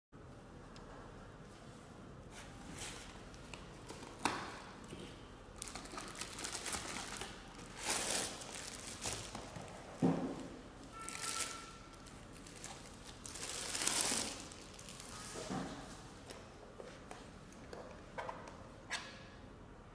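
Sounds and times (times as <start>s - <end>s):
cardboard and plastic bag crinkling: 5.6s - 10.0s, 10.9s - 15.8s.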